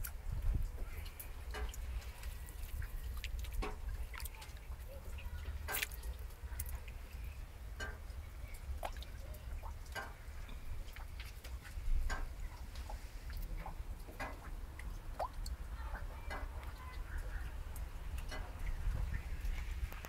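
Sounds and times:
water and ice dripping and clicking: 0:00.0 - 0:20.0.

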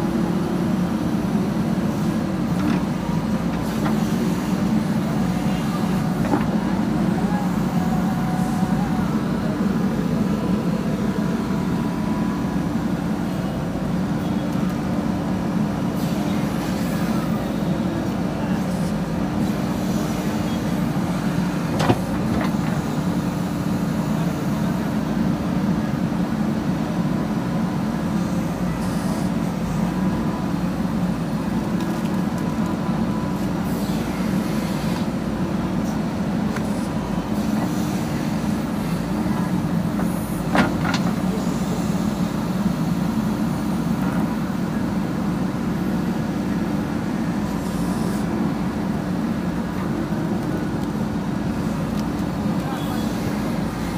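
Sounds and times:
diesel engine running: 0:00.0 - 0:53.9
backhoe digging mud: 0:01.2 - 0:09.2, 0:15.9 - 0:24.5, 0:31.4 - 0:44.3.

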